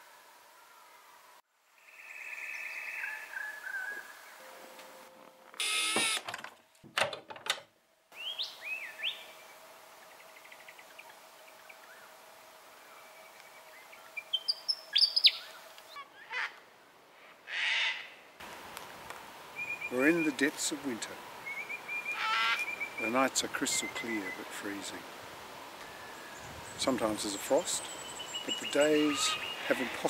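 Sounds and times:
bird chirping in rising phrases: 0:01.8 - 0:04.5, 0:12.9 - 0:15.6
faint steady hum: 0:07.8 - 0:17.4
cockatoos screeching: 0:22.1 - 0:22.7, 0:28.7 - 0:30.0.

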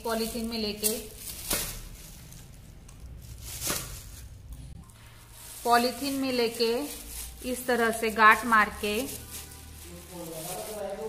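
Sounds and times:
woman speaking: 0:00.0 - 0:01.2, 0:05.5 - 0:09.3
plastic bag rustling: 0:00.0 - 0:11.0.

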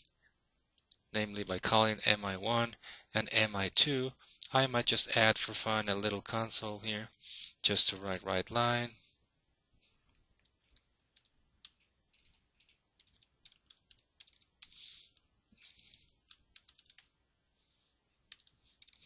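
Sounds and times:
faint computer keyboard typing: 0:00.0 - 0:01.1, 0:10.0 - 0:17.1, 0:18.2 - 0:19.0.

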